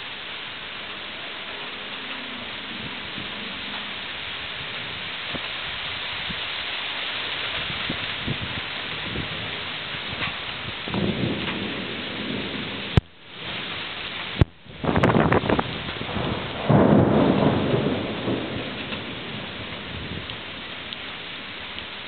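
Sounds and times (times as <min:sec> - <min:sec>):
steady rain falling: 0:00.0 - 0:22.0
thunder rumbling: 0:01.4 - 0:06.4, 0:07.4 - 0:22.0.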